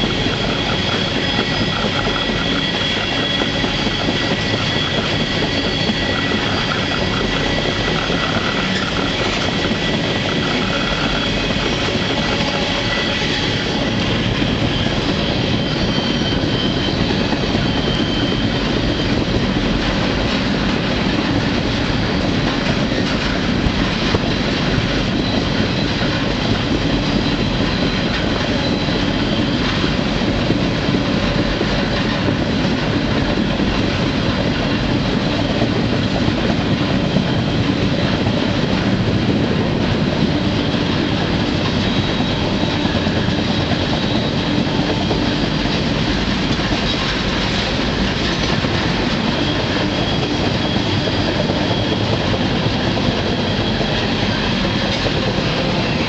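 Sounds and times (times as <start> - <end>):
high wheel squeal: 0.0 - 56.0
train wheels rumbling on rails: 0.0 - 56.0.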